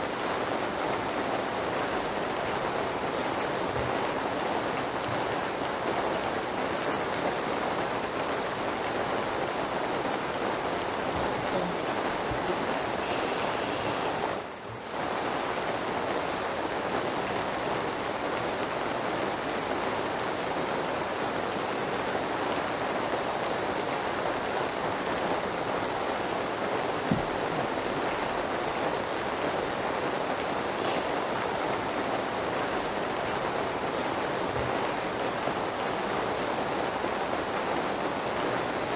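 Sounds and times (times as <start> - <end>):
steady rain hiss: 0.0 - 38.9.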